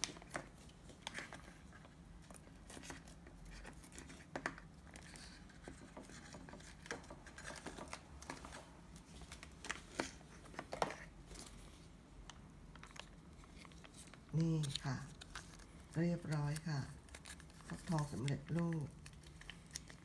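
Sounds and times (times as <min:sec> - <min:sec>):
foil pouch crinkling: 0:12.8 - 0:20.0.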